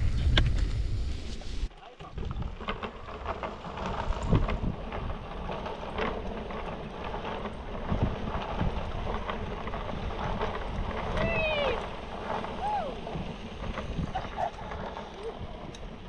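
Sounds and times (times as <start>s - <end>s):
bike tyre noise: 0.0s - 16.0s
wind buffeting microphone: 0.0s - 16.0s
bike knocks and rattles: 2.0s - 16.0s.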